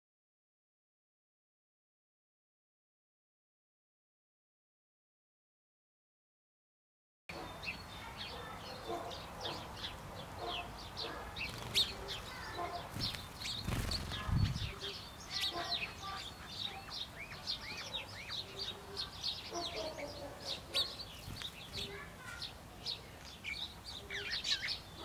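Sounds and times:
sparrows chirping: 7.3 - 25.0.

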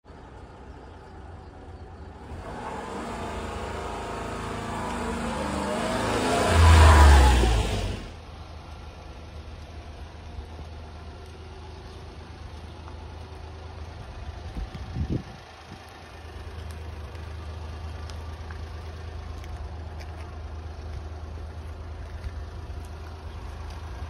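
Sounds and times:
small truck engine: 0.1 - 24.0.

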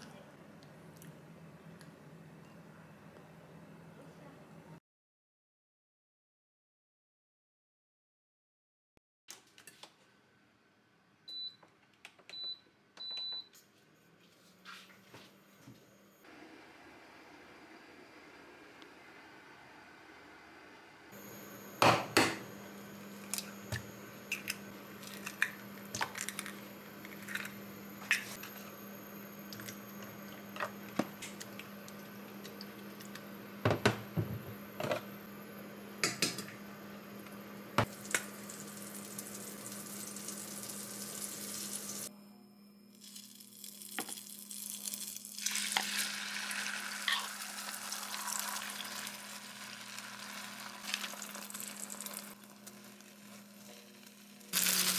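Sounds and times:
egg sizzling in a frying pan: 37.9 - 42.1, 43.0 - 54.9.

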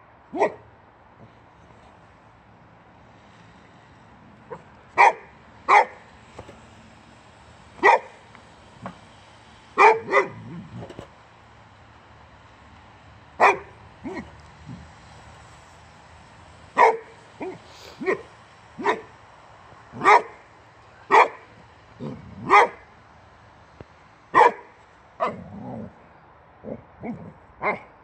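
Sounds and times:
dog barking: 0.3 - 0.6, 4.5 - 6.0, 7.8 - 8.2, 9.8 - 10.4, 13.4 - 14.3, 16.8 - 19.1, 20.0 - 20.4, 21.1 - 21.4, 22.4 - 22.8, 24.4 - 25.4, 27.0 - 27.9
dog growling: 25.2 - 26.0.

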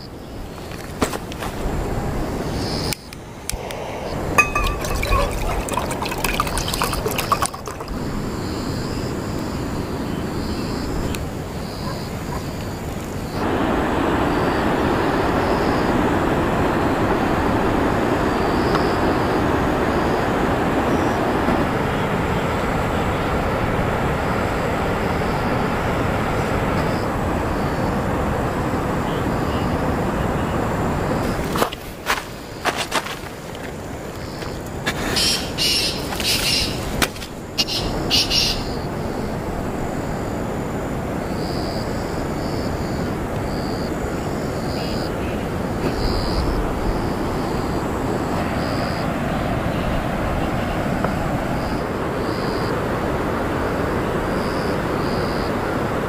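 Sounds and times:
steady rushing noise: 1.2 - 9.9
water pouring into metal mug: 4.1 - 8.3
light clinks: 4.4 - 7.8.

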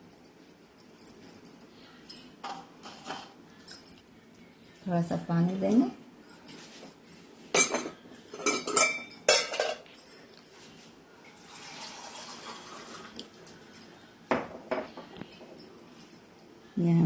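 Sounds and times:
glass and steel clinking: 6.3 - 10.5
water pouring into jar: 11.4 - 13.2.

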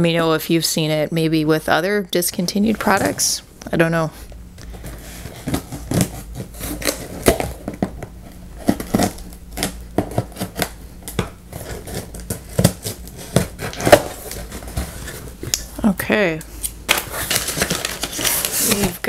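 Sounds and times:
scissors cutting packing tape: 5.2 - 7.6, 8.6 - 15.6, 16.6 - 19.0.

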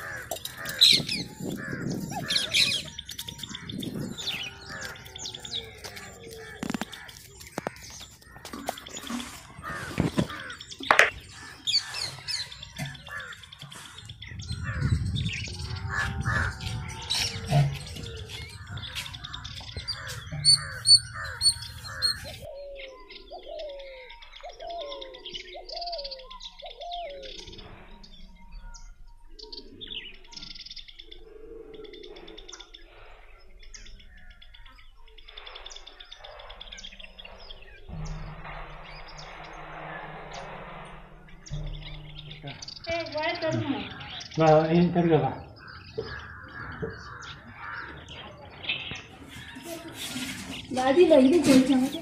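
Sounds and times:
birds chirping and calling: 0.0 - 52.0
low handling noise: 37.8 - 44.1.

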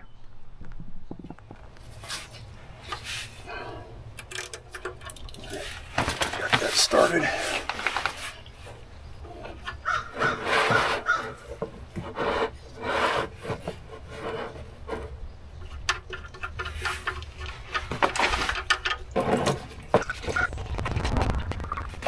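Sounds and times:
gloved hand scraping metal: 9.3 - 15.2.

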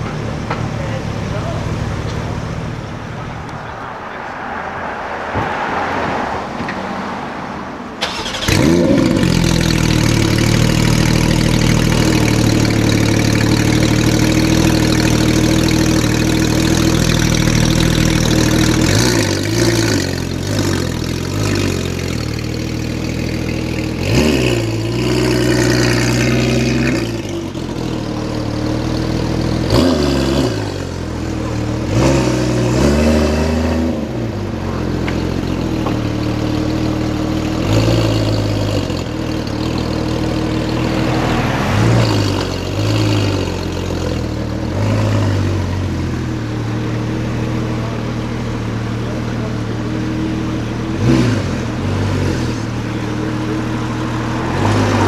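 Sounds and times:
sports car engine revving: 0.0 - 55.0.

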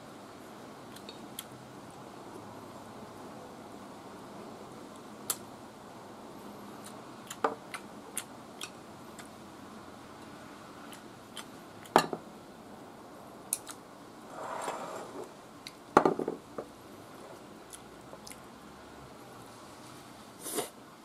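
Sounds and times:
soft chewing: 10.2 - 11.9, 17.4 - 18.5.

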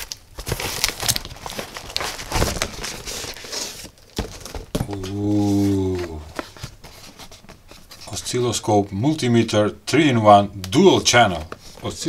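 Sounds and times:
cardboard carton tearing and rustling: 0.0 - 7.2
man humming: 4.8 - 6.4.

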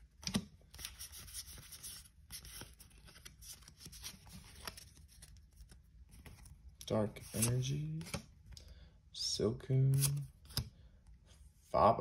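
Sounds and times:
cards rustling and clicking: 0.0 - 8.7, 9.9 - 10.8.

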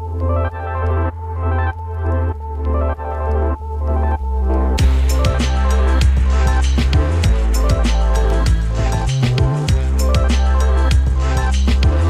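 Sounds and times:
sustained chords over low bass: 0.0 - 12.0
drum beat: 4.8 - 12.0.

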